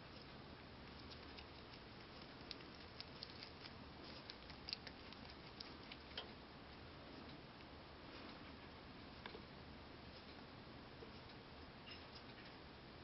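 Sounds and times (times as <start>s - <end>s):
rabbit chewing leaf: 0.0s - 8.8s.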